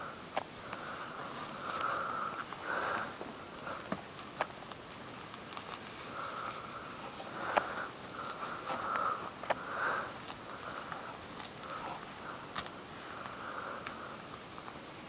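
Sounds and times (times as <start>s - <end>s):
fruit peel tearing and scraping: 3.5s - 14.8s.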